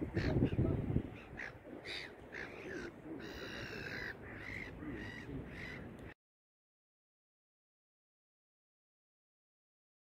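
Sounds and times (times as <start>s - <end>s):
gulls calling: 0.0s - 6.2s.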